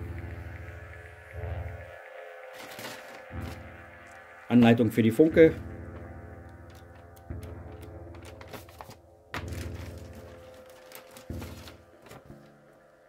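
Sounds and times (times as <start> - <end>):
faint background music: 0.0 - 13.0
paper pages rustling: 2.5 - 3.6, 6.7 - 12.8
booklet set down on wooden floor: 2.6 - 3.6, 7.5 - 12.6.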